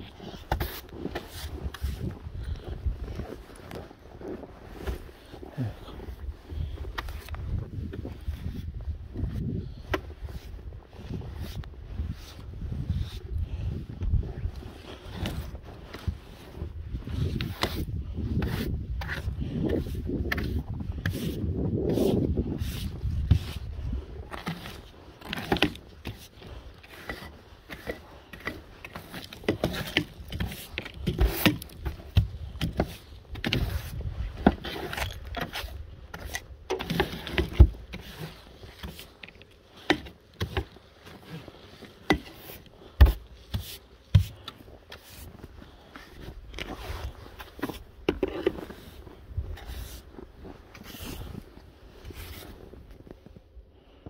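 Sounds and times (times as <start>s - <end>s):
brush scraping snow off car: 0.2s - 2.2s, 14.7s - 52.9s.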